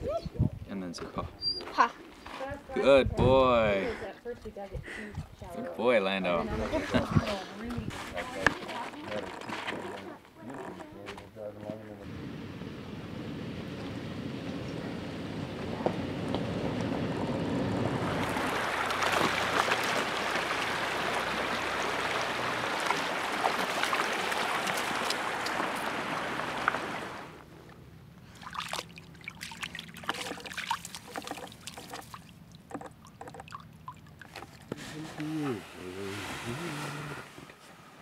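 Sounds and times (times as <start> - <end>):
creek running over stones: 15.5 - 27.4, 28.3 - 37.2
small clicks and splashes: 18.2 - 26.9, 28.3 - 34.8.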